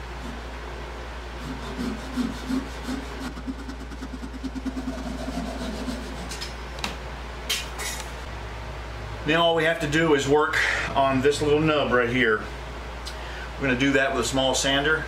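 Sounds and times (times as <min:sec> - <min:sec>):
hand saw cutting wood: 0:01.4 - 0:06.4.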